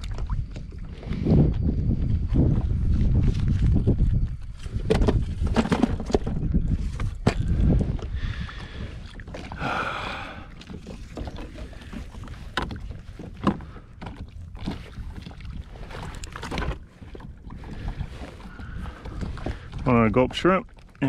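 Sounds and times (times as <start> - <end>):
wind noise on microphone: 0.0 - 20.5.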